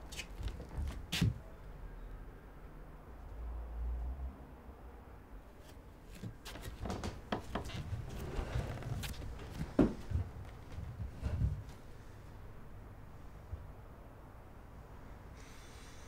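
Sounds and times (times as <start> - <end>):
bare footsteps on wooden floor: 6.2 - 11.8.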